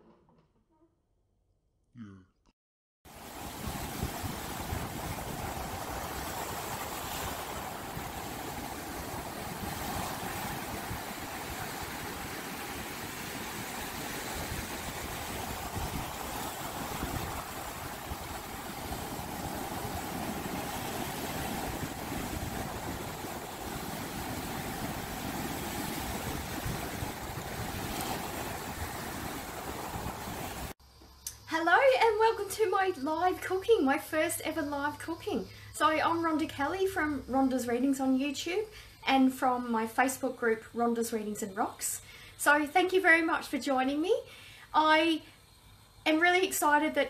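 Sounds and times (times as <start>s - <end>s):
ocean surf washing over rocks: 3.1s - 30.8s.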